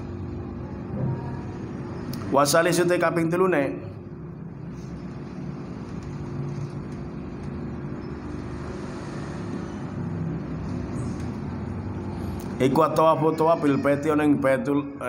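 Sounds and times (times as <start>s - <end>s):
steady low rumble with hum: 0.0s - 15.0s.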